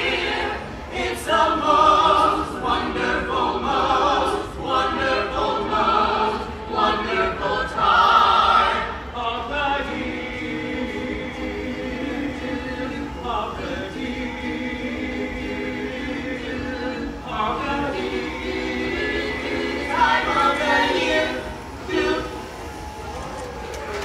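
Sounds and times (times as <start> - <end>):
choir singing a cappella: 0.0 - 23.1.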